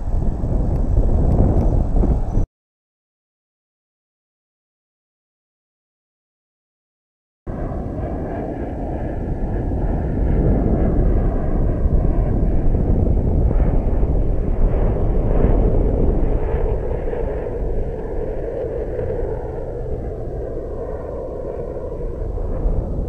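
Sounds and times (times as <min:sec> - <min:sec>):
wind buffeting microphone: 0:00.0 - 0:02.5, 0:07.5 - 0:23.0.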